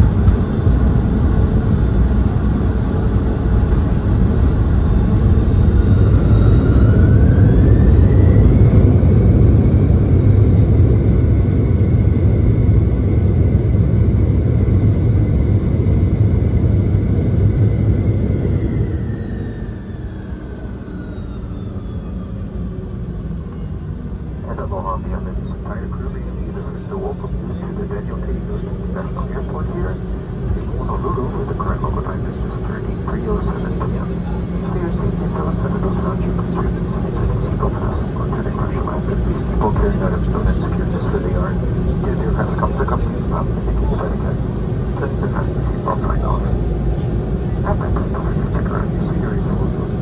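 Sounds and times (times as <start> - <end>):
jet engines reverse thrust whine: 0.0 - 50.0
wheels rumbling on runway: 0.0 - 50.0.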